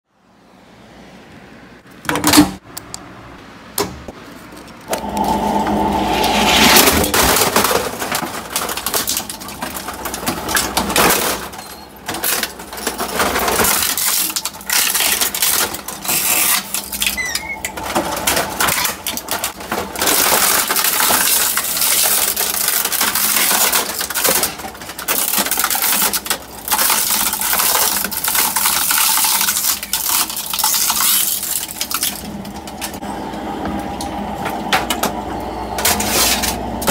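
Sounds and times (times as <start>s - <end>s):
shredder motor humming: 4.9s - 11.0s
plastic cracking and crunching: 7.0s - 33.0s.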